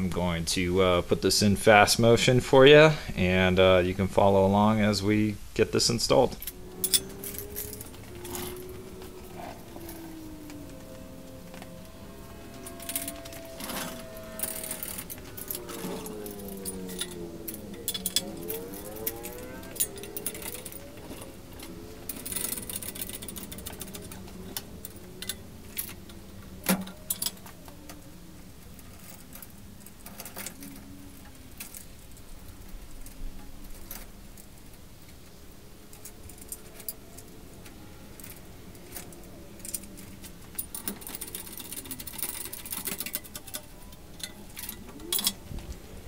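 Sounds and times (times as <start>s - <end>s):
steady low hum: 0.0s - 46.0s
metallic clinks of chains and tools: 6.4s - 9.1s, 12.5s - 24.2s.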